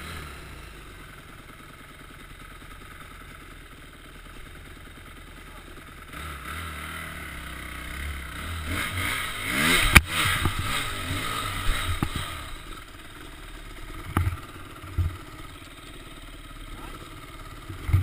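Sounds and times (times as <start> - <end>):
dirt bike engine revving: 0.0 - 1.0, 6.0 - 18.0
bike thumping over rough ground: 14.0 - 15.4.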